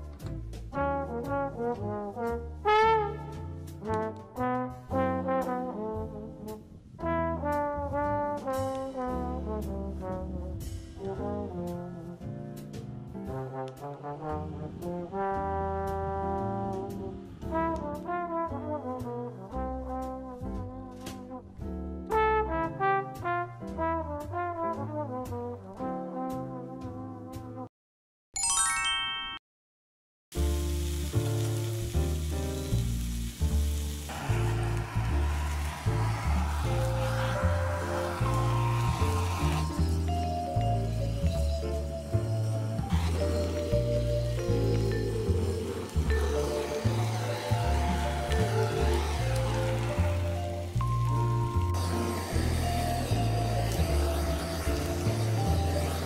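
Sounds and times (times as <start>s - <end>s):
background music with bass: 0.0s - 27.6s, 30.4s - 56.0s
brass melody: 0.6s - 27.7s, 34.0s - 56.0s
descending chime notes: 28.4s - 29.4s
steak sizzling on grill pan: 30.4s - 56.0s.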